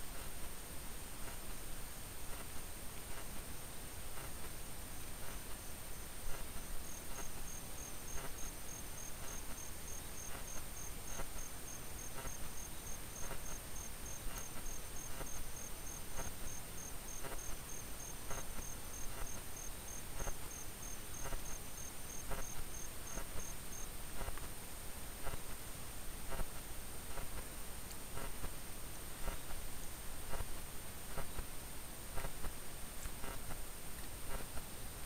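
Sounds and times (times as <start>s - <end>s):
constant high hiss: 0.0s - 35.0s
cricket chirping: 4.2s - 24.4s
faint soft clicks: 24.2s - 24.5s, 33.0s - 34.7s.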